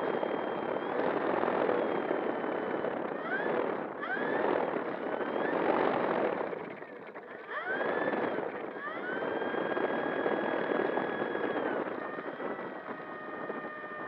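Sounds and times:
high electric motor whine: 0.0 - 14.0
propeller wash and rolling noise: 0.0 - 14.0.

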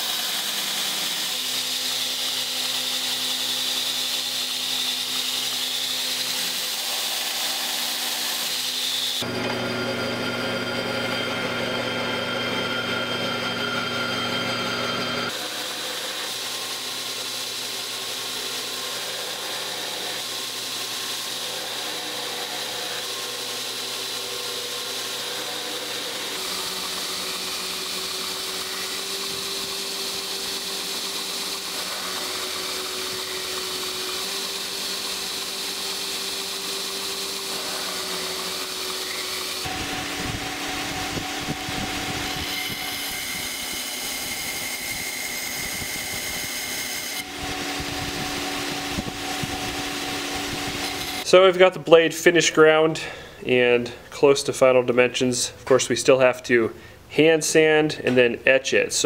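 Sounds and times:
belt grinder grinding knife blade: 0.0 - 51.3.

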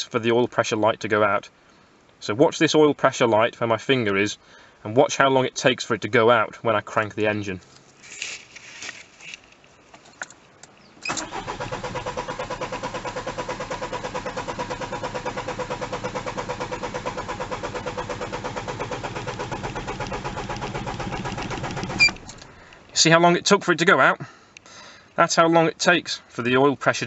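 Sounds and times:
starter motor cranking engine: 11.0 - 22.6.

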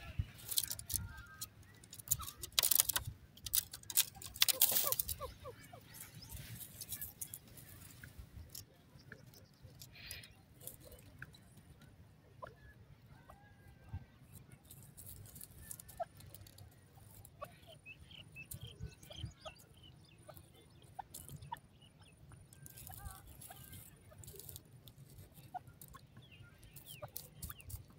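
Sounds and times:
bird clucking and chirping: 0.0 - 11.4, 12.3 - 27.9
faint rustles: 0.0 - 11.6.

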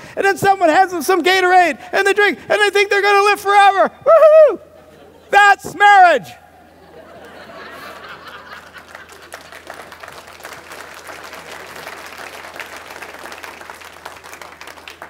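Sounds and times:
audience applauding: 8.0 - 15.0.

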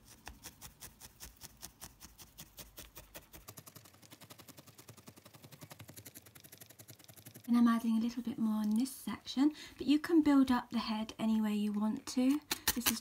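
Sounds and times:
felting needle soft punches: 12.3 - 13.0.

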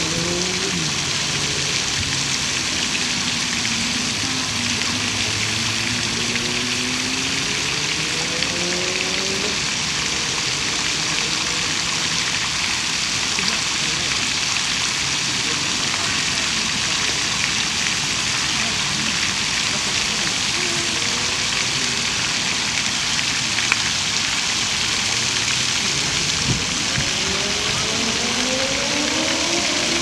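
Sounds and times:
fountain water splashing: 0.0 - 30.0
low hum rising in pitch: 25.4 - 30.0.

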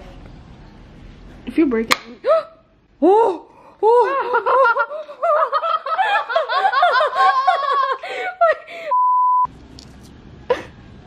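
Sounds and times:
people laughing hard: 3.8 - 8.9.

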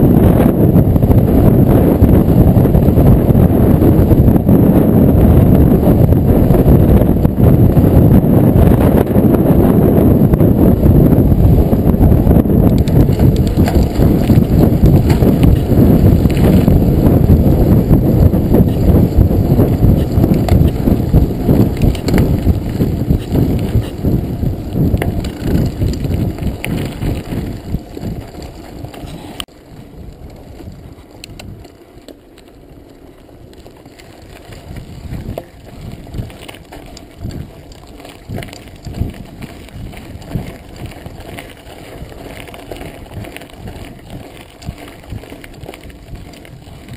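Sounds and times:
bike rattling over bumps: 0.0 - 46.9
wind buffeting microphone: 0.0 - 46.9
tyres crunching on gravel: 11.3 - 46.9.

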